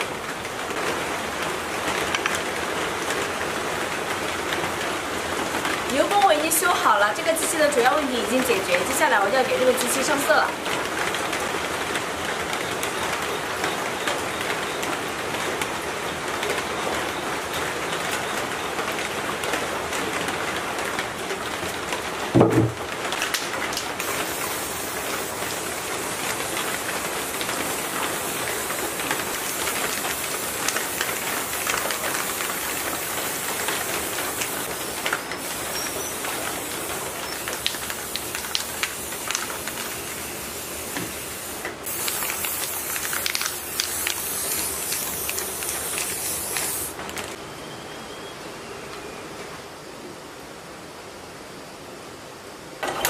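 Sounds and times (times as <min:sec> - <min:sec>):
spray paint cans hissing: 0:05.9 - 0:10.5, 0:23.7 - 0:47.4
loud knock: 0:22.4 - 0:22.8.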